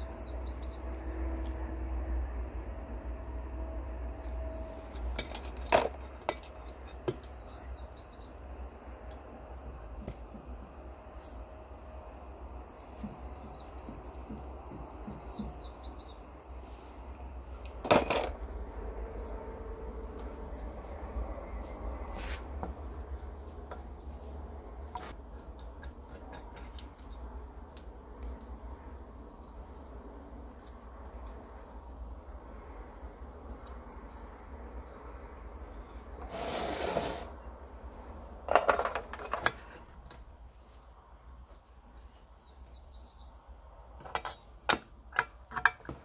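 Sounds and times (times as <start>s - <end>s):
birds chirping: 6.5s - 8.5s, 13.0s - 16.3s
metal parts clicking and clinking: 17.6s - 18.4s, 38.5s - 40.2s, 44.0s - 46.0s.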